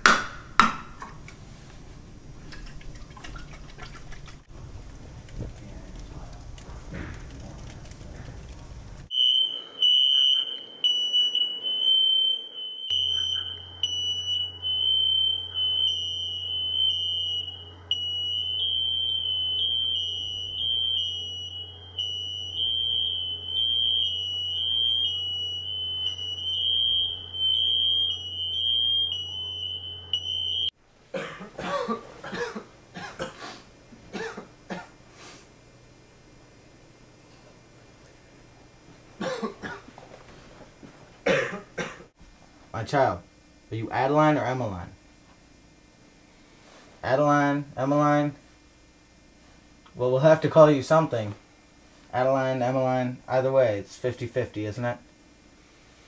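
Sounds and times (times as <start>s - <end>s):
smoke alarm tone: 9.1s - 30.8s
person coughing: 31.1s - 34.9s, 39.2s - 39.9s, 41.2s - 42.1s.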